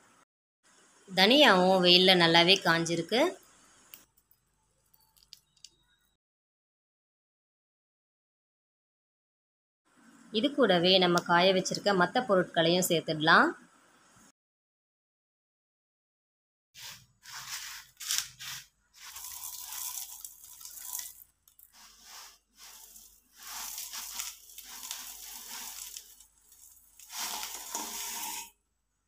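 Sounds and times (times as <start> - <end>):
grains pouring into plastic basin: 16.8 - 28.5.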